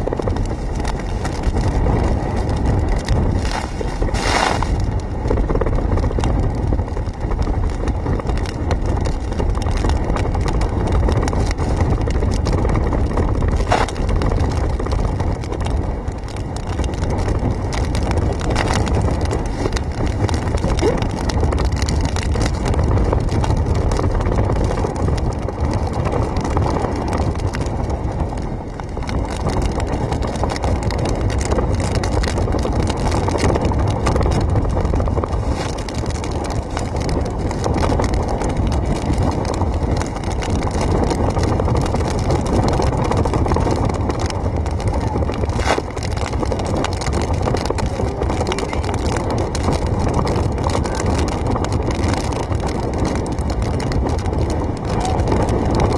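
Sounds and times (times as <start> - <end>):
wind buffeting microphone: 0.0 - 55.9
waves breaking over seawall: 0.2 - 5.3, 13.0 - 22.6, 28.3 - 55.9.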